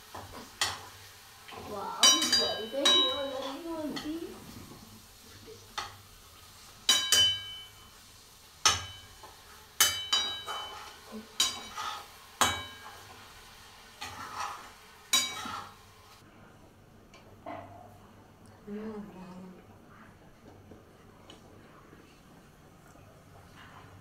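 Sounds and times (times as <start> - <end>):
faint sizzle: 0.0 - 24.0
metal spoon clinking on pan: 2.0 - 4.1, 6.9 - 7.8, 8.6 - 13.0, 15.1 - 15.7
spoon scraping pan: 8.6 - 16.2.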